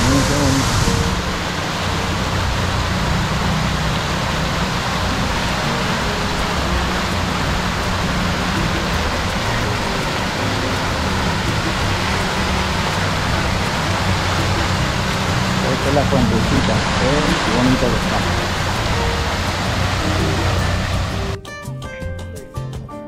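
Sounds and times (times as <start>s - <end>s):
fountain water splashing into basin: 0.0s - 21.4s.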